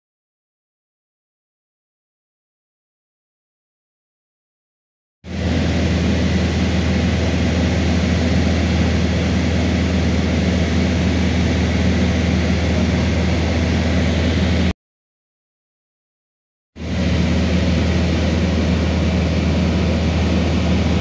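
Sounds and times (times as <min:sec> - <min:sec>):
light aircraft engine droning: 0:05.3 - 0:14.7, 0:16.8 - 0:21.0
rushing air noise: 0:05.3 - 0:14.7, 0:16.8 - 0:21.0.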